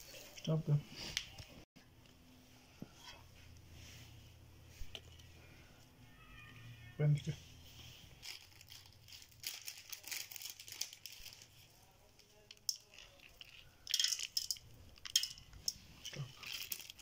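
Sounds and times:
crackly rustling of meat in pot: 8.2 - 17.0.

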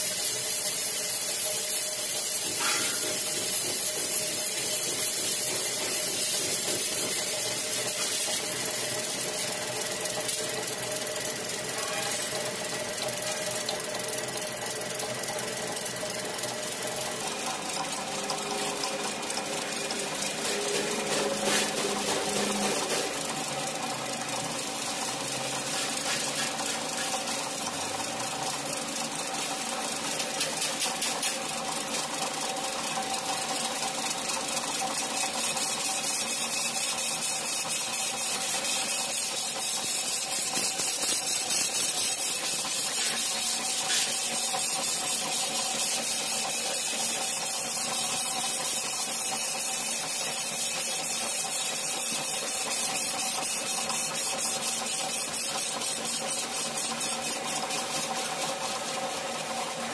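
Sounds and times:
fast mechanical ticking: 0.0 - 59.9
metal lathe running: 0.0 - 59.9.

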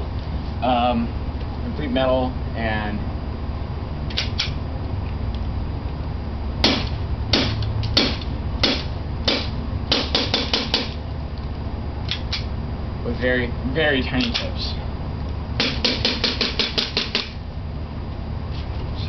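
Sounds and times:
airsoft pistol shots: 6.6 - 11.0, 15.6 - 17.4.

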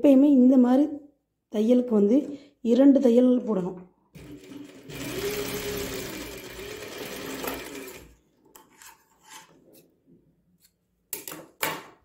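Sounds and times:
sewing machine stitching: 4.2 - 8.2.

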